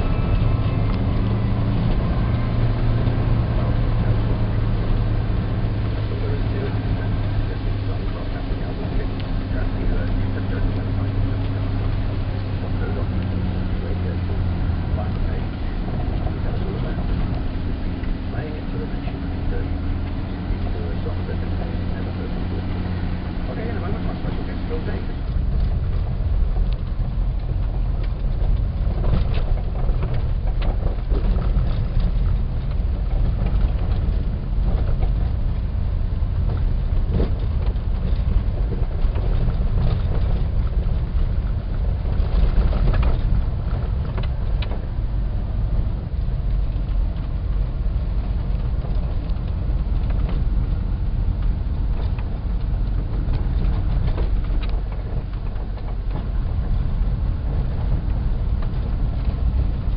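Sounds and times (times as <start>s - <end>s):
engine and road drone: 0.0s - 59.9s
rattles and knocks: 23.6s - 59.9s.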